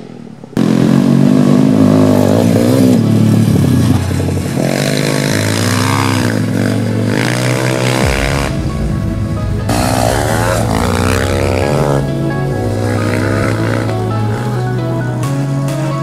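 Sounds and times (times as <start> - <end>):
motorbike engine revving: 0.0 - 16.0.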